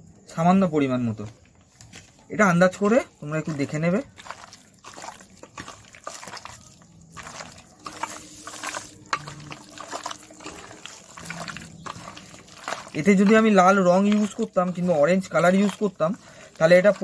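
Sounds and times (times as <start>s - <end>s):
hand squishing wet marinade: 0.9s - 17.0s.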